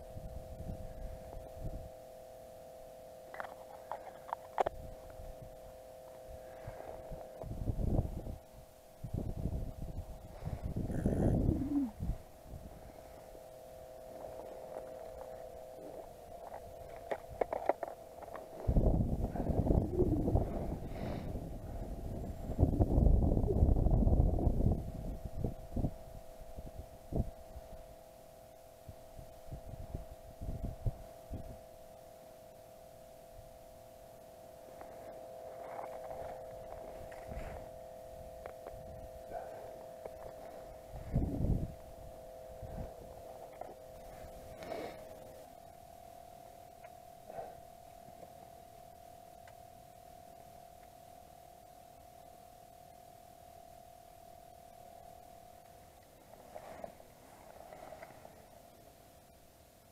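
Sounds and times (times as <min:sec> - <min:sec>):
two-note electronic hum: 0:00.0 - 0:59.9
soft rustle: 0:03.4 - 0:22.7, 0:34.6 - 0:49.6, 0:54.2 - 0:59.5.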